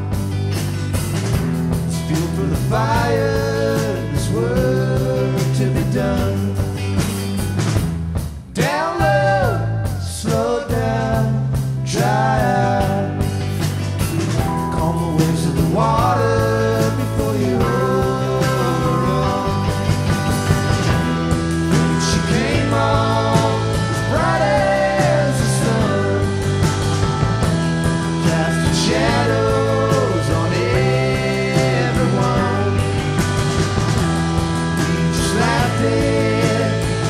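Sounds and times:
drum kit: 0:00.0 - 0:37.0
electric guitars: 0:00.0 - 0:37.0
keyboard: 0:00.0 - 0:37.0
person singing lead vocals: 0:01.9 - 0:06.8, 0:08.6 - 0:13.6, 0:14.6 - 0:27.1, 0:28.0 - 0:33.4, 0:34.6 - 0:37.0.

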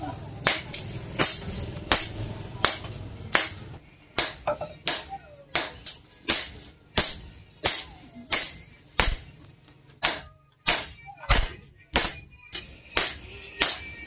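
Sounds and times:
hammer striking blade on anvil: 0:00.4 - 0:03.6, 0:04.2 - 0:09.3, 0:10.0 - 0:14.0.

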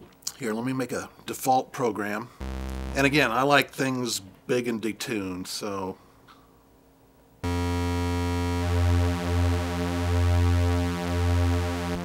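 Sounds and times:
low sawtooth synthesizer note: 0:02.4 - 0:03.4, 0:07.4 - 0:12.0.

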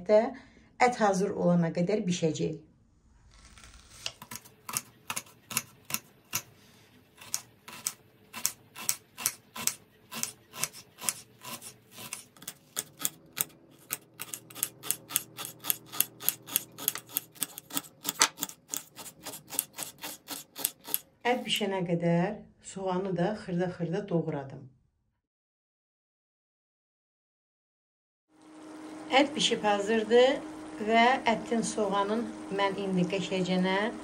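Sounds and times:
knife chopping on cutting board: 0:07.2 - 0:21.0.

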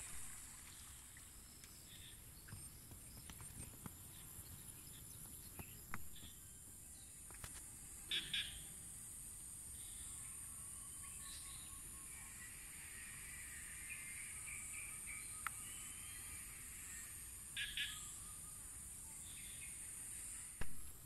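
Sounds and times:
high-pitched insect drone: 0:09.7 - 0:20.6.

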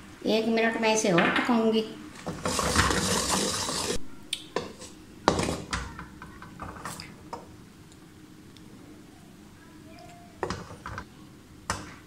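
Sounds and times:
spatula scraping boiling syrup: 0:02.3 - 0:04.0.

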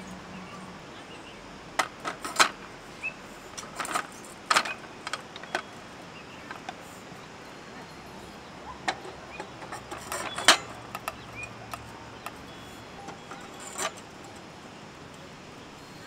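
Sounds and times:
metal legs clinking: 0:01.8 - 0:02.7, 0:03.5 - 0:05.8, 0:06.4 - 0:06.8, 0:08.6 - 0:15.2.

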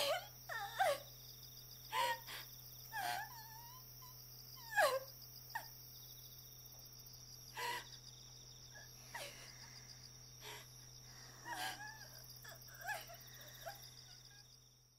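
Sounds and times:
woman crying and sobbing: 0:00.0 - 0:01.2, 0:01.9 - 0:05.7, 0:07.5 - 0:08.0, 0:08.8 - 0:14.5
crickets chirping: 0:00.0 - 0:14.9.

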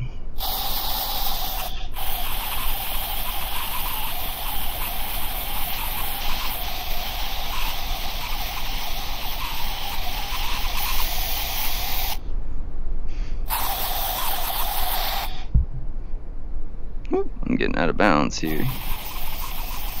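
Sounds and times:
low hum: 0:00.0 - 0:00.4, 0:15.4 - 0:18.7
steady spray hiss: 0:00.0 - 0:12.2, 0:13.4 - 0:15.5, 0:18.1 - 0:20.0.

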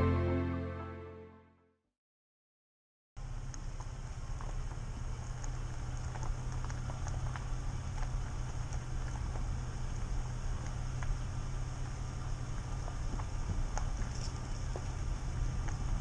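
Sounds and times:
car engine and road drone: 0:03.2 - 0:16.0
small ticks: 0:03.5 - 0:16.0
tyre hiss on wet road: 0:04.0 - 0:16.0.

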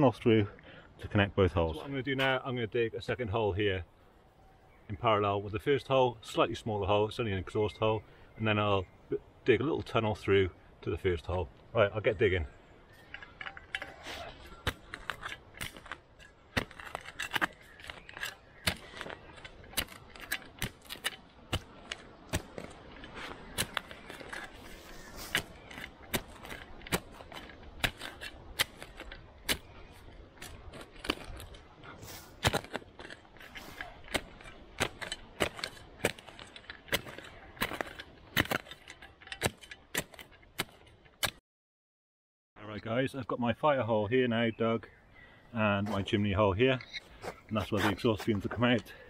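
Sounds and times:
soil scraping: 0:09.8 - 0:41.4, 0:45.6 - 0:49.0
shovel blade striking hard earth: 0:13.8 - 0:41.4.

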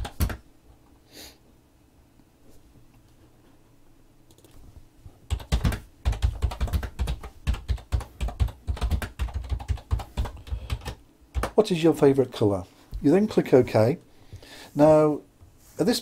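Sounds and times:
computer keyboard typing: 0:00.0 - 0:00.4, 0:04.3 - 0:04.6, 0:05.3 - 0:11.6.

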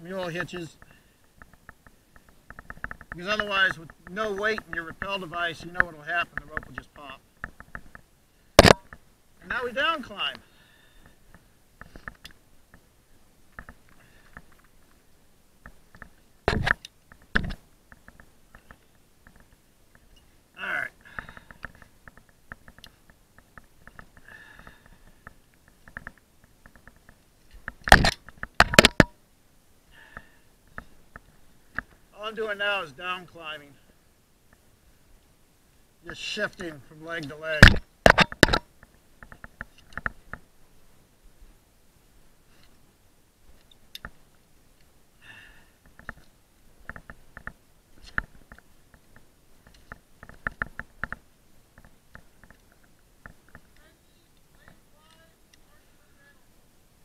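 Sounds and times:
metal climbing hardware clicking: 0:25.6 - 0:29.1.

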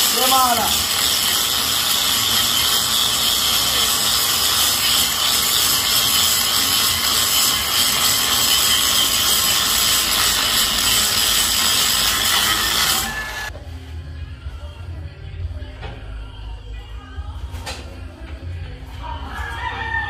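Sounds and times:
angle grinder grinding steel: 0:00.0 - 0:13.5.

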